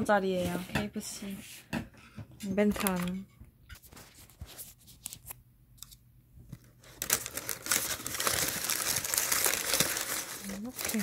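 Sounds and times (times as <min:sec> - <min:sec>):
paper crinkling and rustling: 0:03.8 - 0:11.0.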